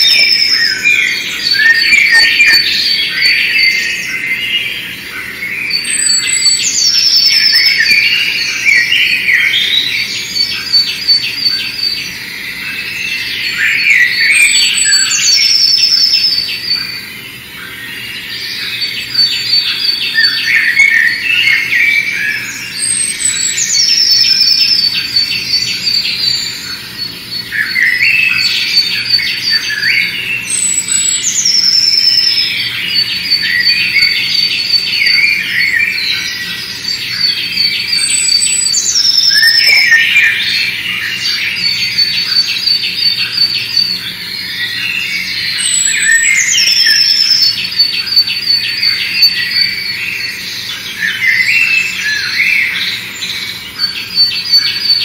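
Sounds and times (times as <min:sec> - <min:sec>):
high falling bird whistle: 0:00.0 - 0:04.2
songbirds chirping and trilling: 0:00.0 - 0:55.0.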